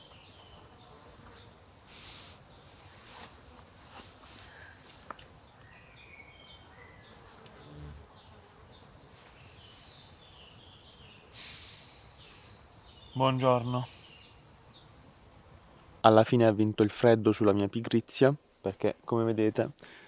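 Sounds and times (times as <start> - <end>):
distant birds chirping: 0.0 - 3.1, 4.4 - 16.2
insect buzzing: 0.1 - 3.8, 5.8 - 13.2
short rustle: 1.9 - 5.1.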